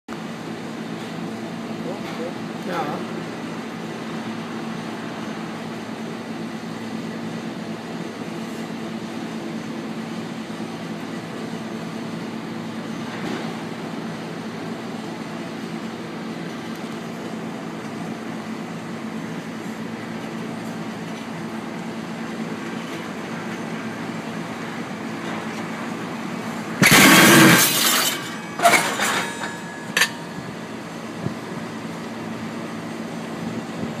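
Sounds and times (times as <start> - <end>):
steady low hum: 14.0 - 34.0
wagon wheel crashing onto skid shoe: 26.8 - 30.1.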